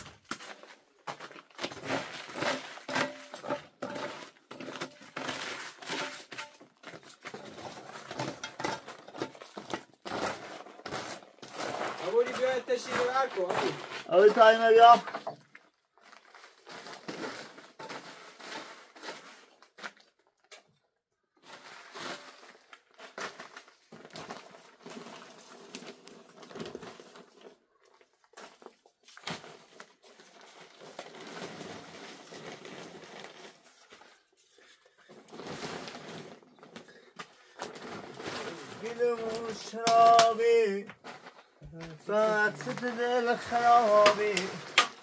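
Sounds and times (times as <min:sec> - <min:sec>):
powder rustling on plastic sheet: 0:00.0 - 0:20.2, 0:21.4 - 0:45.0.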